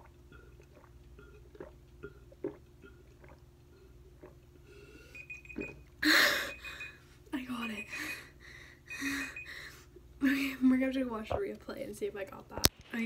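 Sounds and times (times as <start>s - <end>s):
gulping water: 0.0s - 7.0s.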